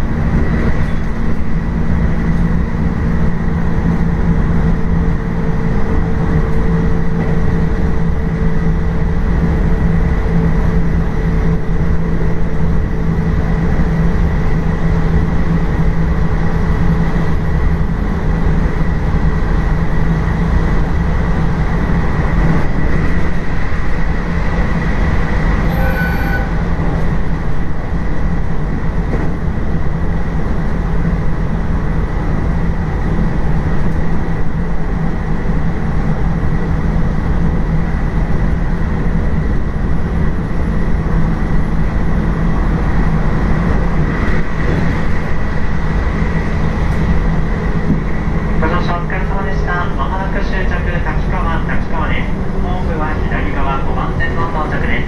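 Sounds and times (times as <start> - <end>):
train wheels rumbling on rail: 0.0 - 55.0
short tone: 25.7 - 26.6.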